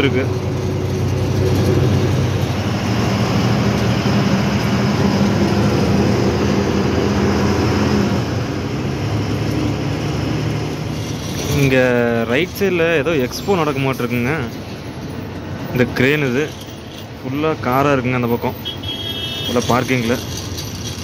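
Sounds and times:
truck engine running: 0.0 - 13.3
road noise: 0.0 - 21.0.

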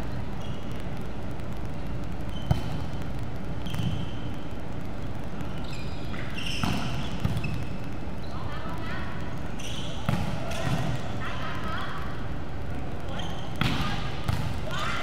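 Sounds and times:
sneakers squeaking on floor: 0.1 - 0.8, 2.3 - 2.9, 3.6 - 4.3, 5.6 - 8.4, 9.6 - 11.0, 13.2 - 13.9.

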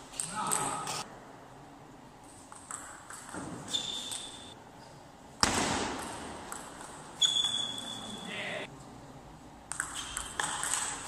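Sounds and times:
shoe squeak: 3.6 - 4.5, 7.2 - 8.3
loud echoing thump: 5.4 - 6.4.

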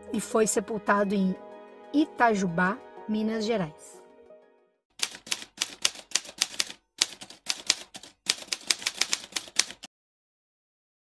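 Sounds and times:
typewriter keystrokes: 5.0 - 9.9.

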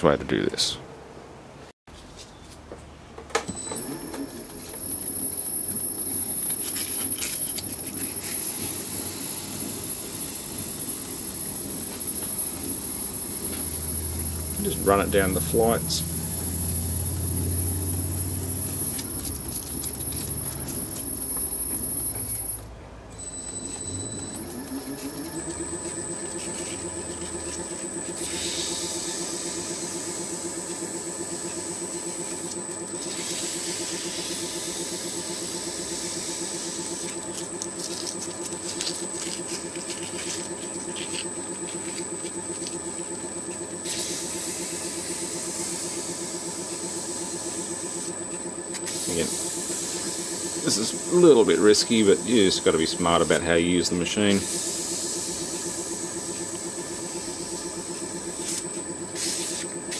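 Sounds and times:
metal lathe whining: 3.8 - 22.6, 23.2 - 59.9
sandpaper hissing on threads: 26.3 - 30.2, 54.4 - 57.6, 58.3 - 59.7.

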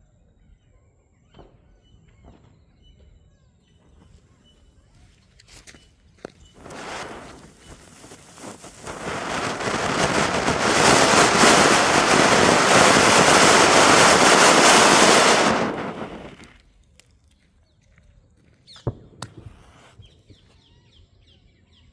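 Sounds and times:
firework fountain hissing: 6.6 - 16.6.

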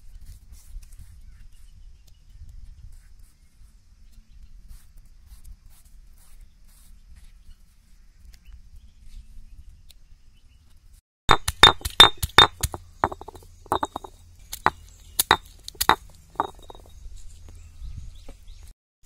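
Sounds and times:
fingers scraping stone slab: 11.3 - 16.9
sharp clinking knocks: 11.3 - 17.0.

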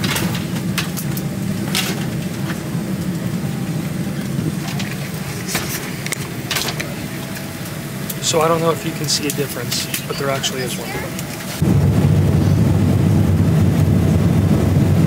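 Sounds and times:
cabin ventilation hum: 0.0 - 11.7.

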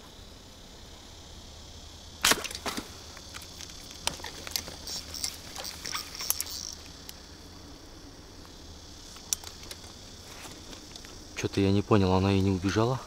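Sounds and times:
insects chirring: 0.0 - 13.0
sharp clicks and light patters: 3.2 - 7.2.

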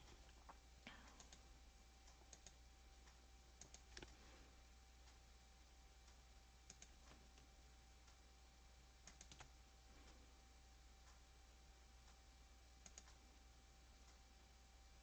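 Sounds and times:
computer mouse clicks: 0.1 - 4.2, 6.1 - 7.5, 9.0 - 9.6, 12.8 - 13.2.

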